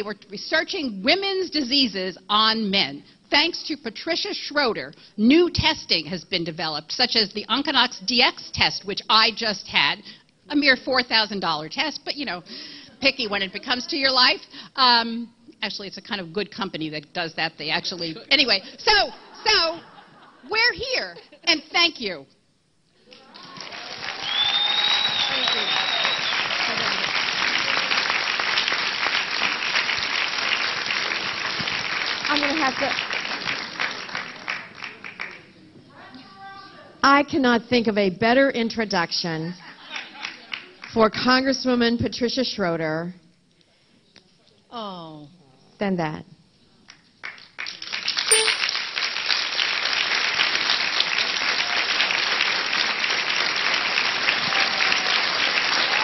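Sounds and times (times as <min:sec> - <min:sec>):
audience applauding: 0:23.2 - 0:35.4, 0:47.2 - 0:56.0
crowd clapping: 0:23.2 - 0:35.4, 0:40.2 - 0:40.8, 0:47.2 - 0:56.0.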